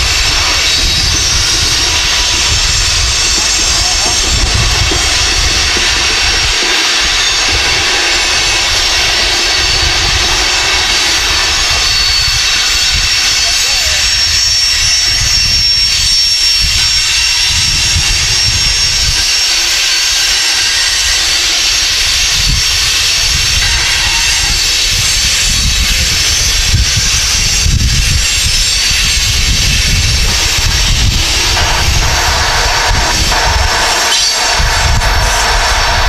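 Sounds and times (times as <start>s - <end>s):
high steady tones: 0.0s - 17.8s, 28.2s - 36.0s
freight train cars rolling: 0.0s - 36.0s.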